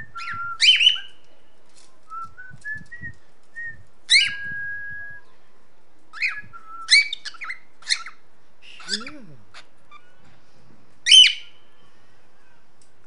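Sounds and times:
cockatiel whistling: 0:00.1 - 0:01.1, 0:04.1 - 0:05.2, 0:06.2 - 0:08.2.

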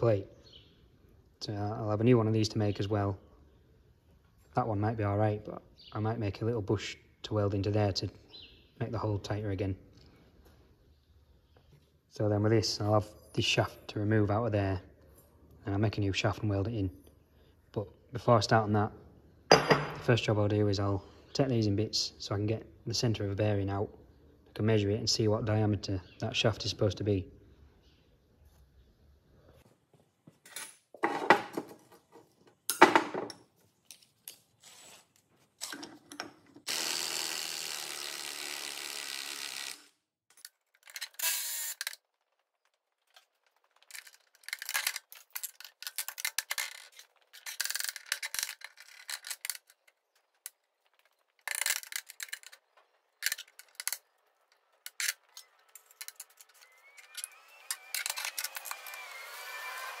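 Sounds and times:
impact driver running: 0:36.7 - 0:39.9, 0:56.5 - 1:00.0
steel parts clanking and rattling: 0:43.1 - 0:57.3.

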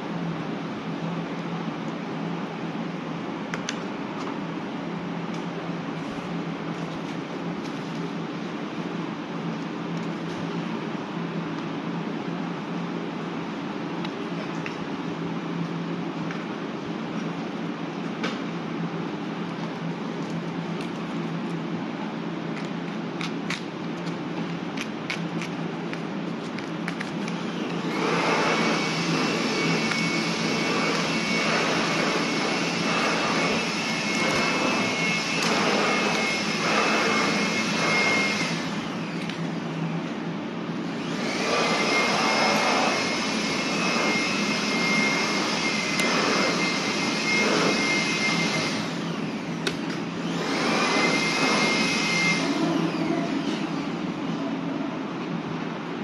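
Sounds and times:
machine rushing air with whine: 0:27.1 - 0:56.0.

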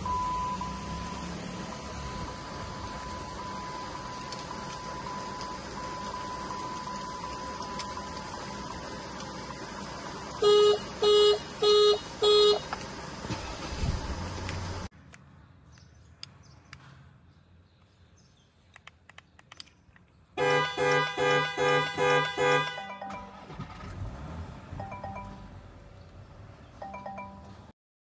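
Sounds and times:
car engine starting: 0:00.0 - 0:14.9, 0:20.4 - 0:27.7
car horn honks: 0:10.4 - 0:12.7, 0:20.4 - 0:23.6
soft clicks: 0:18.6 - 0:20.2.

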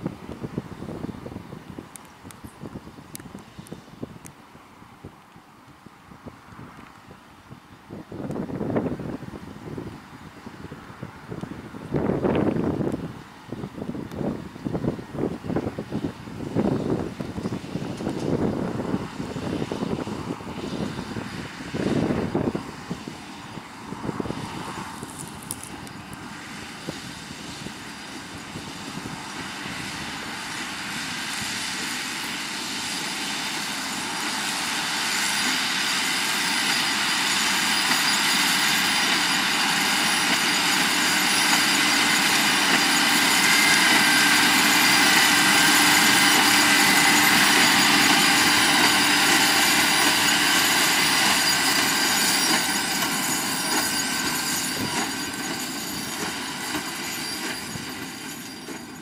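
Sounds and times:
tractor engine working under load: 0:10.6 - 0:59.0
baler mechanism running: 0:32.0 - 0:59.0.

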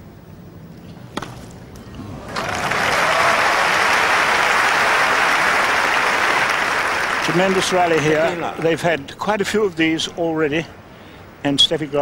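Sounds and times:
crowd applause: 0:02.2 - 0:08.8.

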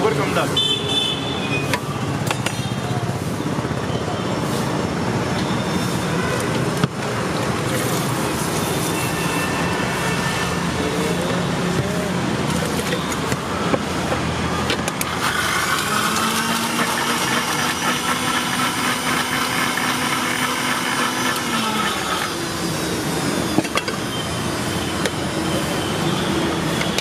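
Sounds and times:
street traffic noise: 0:00.0 - 0:27.0
mixer grinder motor whine: 0:14.8 - 0:27.0.

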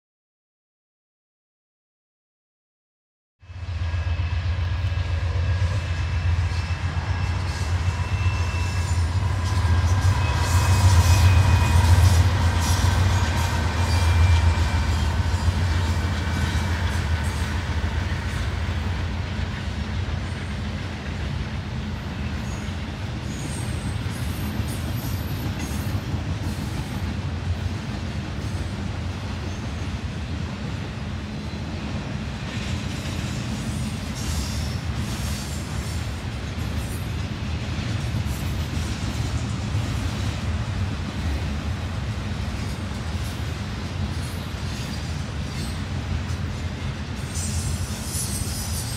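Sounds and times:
locomotive engine hum: 0:03.6 - 0:23.3
train cars rolling on rails: 0:03.6 - 0:48.9.

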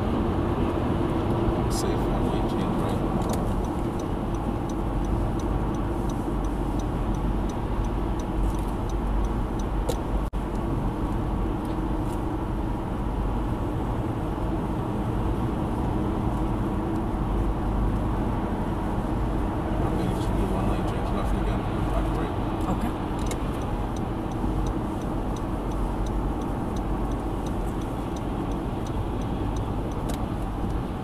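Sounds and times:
car road and engine noise: 0:00.0 - 0:31.0
turn signal ticking: 0:00.6 - 0:31.0.

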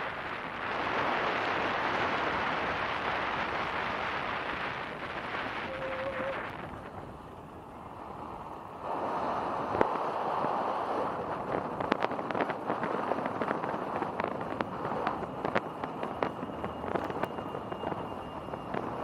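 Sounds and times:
wind and tyre noise: 0:00.0 - 0:19.0
crackles and ticks: 0:11.3 - 0:19.0.

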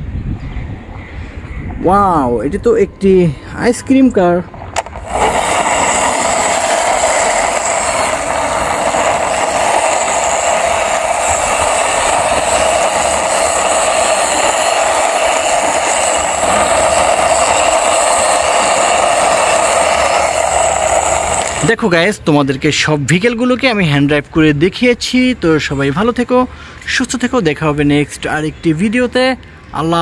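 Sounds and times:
plastic wheels rolling on concrete: 0:04.6 - 0:21.7.

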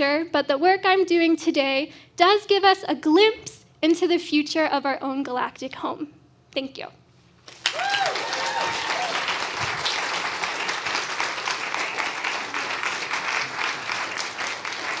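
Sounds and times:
audience applauding: 0:07.5 - 0:15.0
whoops and cheers: 0:07.6 - 0:09.5.

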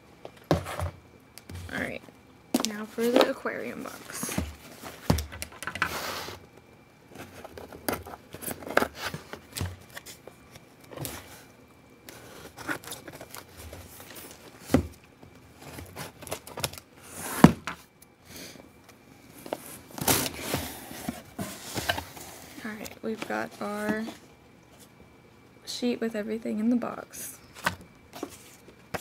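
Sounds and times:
cardboard scraping: 0:19.4 - 0:24.2.

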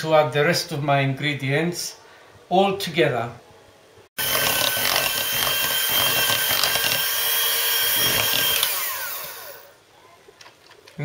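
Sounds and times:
hand mixer whining: 0:04.2 - 0:09.8.

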